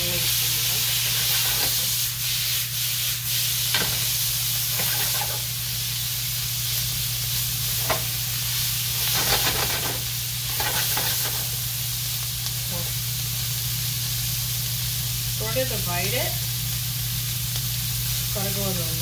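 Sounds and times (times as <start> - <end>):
meat sizzling in a frying pan: 0.0 - 19.0
spatula scraping and tapping pan: 4.7 - 5.5.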